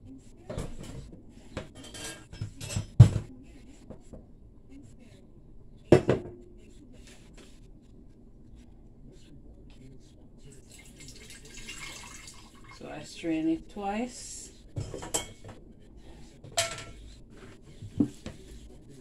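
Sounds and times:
dishes clattering: 0:00.5 - 0:03.3, 0:05.9 - 0:06.4, 0:14.8 - 0:15.6, 0:16.4 - 0:17.0
dish knocking on countertop: 0:05.9 - 0:06.4.

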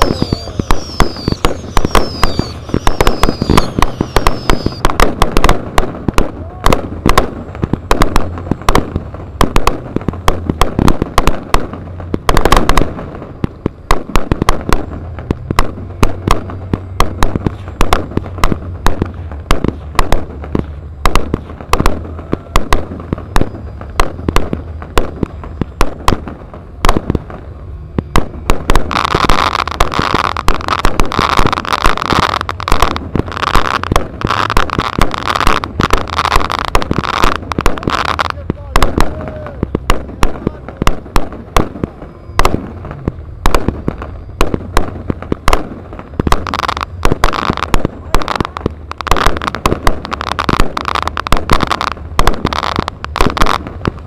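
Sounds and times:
loud hissing: 0:00.0 - 0:04.9
firecracker bangs: 0:00.0 - 0:54.0.

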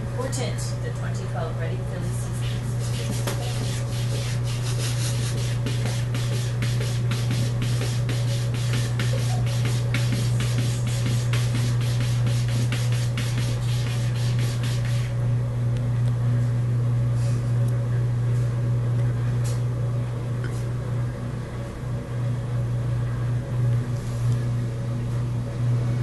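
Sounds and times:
steady low hum: 0:00.0 - 0:26.0
cat scratching board: 0:02.4 - 0:15.1.

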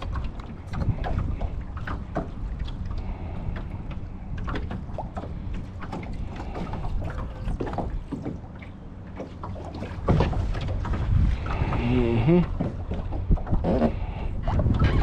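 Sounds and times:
knocks and splashes: 0:00.0 - 0:15.0
water lapping against boat hull: 0:00.0 - 0:15.0
wind on microphone: 0:10.1 - 0:15.0.

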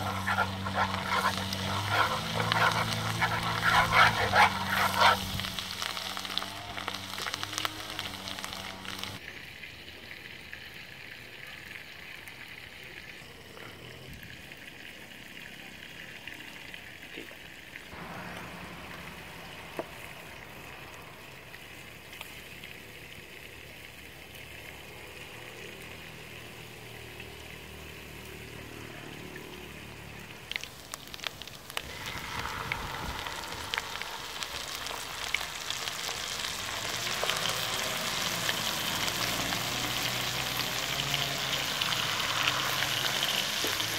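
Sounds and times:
fat sizzling in a frying pan: 0:00.0 - 0:13.4, 0:17.9 - 0:43.9.

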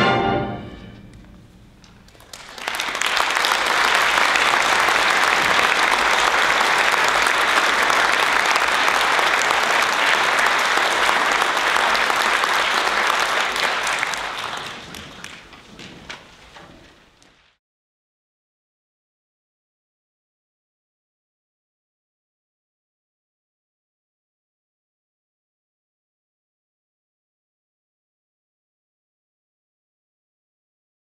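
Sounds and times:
audience applauding: 0:01.9 - 0:17.2.

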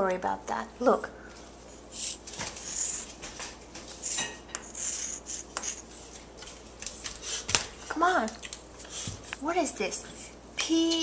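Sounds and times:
chalk scratching on chalkboard: 0:02.0 - 0:03.2, 0:04.0 - 0:06.2
chalk tapping on board: 0:04.0 - 0:05.8.

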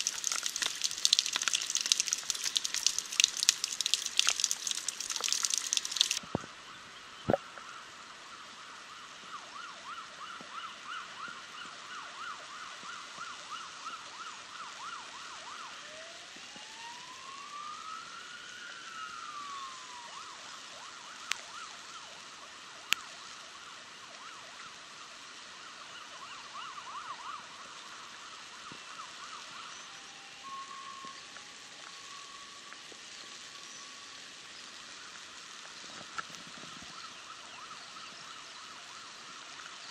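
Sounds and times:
rain hiss: 0:00.0 - 0:39.9
faint emergency siren: 0:07.8 - 0:36.0, 0:36.8 - 0:39.9.

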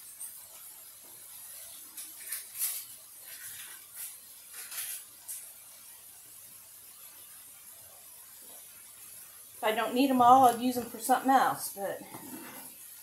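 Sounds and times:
meat sizzling in a skillet: 0:00.0 - 0:13.0.

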